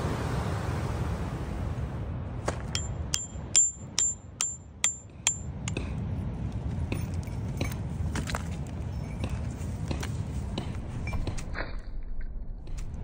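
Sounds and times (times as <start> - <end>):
hammer striking stone: 2.5 - 5.9.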